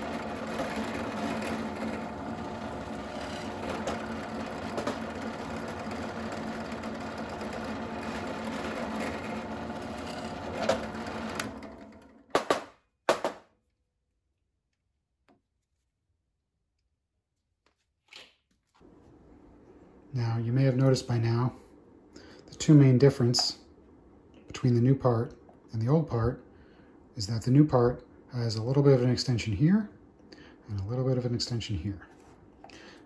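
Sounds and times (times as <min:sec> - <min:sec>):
drill bit boring through plastic: 0:00.0 - 0:11.8
drill press motor running: 0:00.0 - 0:12.3.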